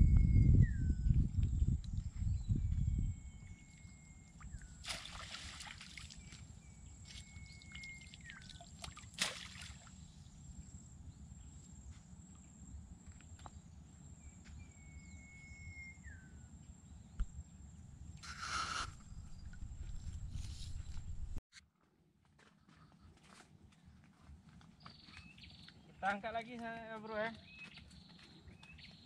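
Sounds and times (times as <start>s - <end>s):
low wind rumble: 0.0s - 4.8s, 16.9s - 21.4s
trap splashing into water: 4.8s - 6.2s, 8.3s - 9.9s
bird whistling: 18.2s - 19.4s.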